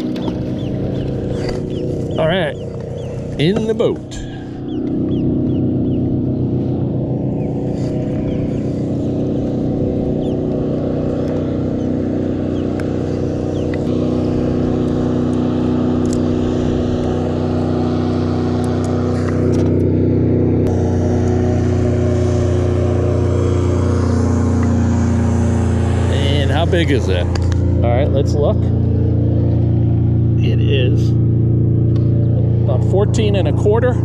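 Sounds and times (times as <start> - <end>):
low engine drone: 0.0 - 34.0.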